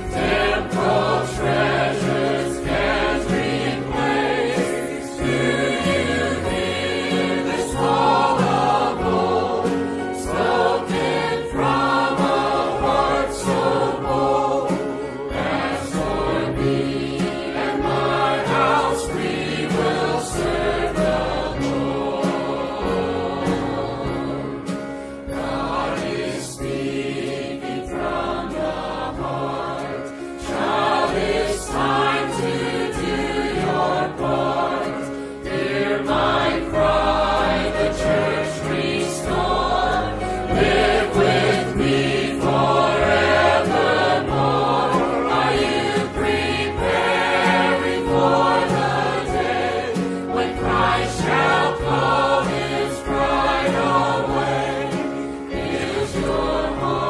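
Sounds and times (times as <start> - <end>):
choir singing a hymn: 0.0 - 57.0.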